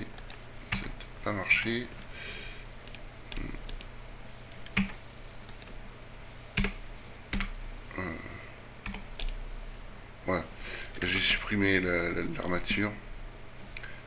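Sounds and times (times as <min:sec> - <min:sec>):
steady low hum: 0:00.0 - 0:14.0
computer keyboard clicks: 0:06.6 - 0:07.5, 0:08.8 - 0:09.4.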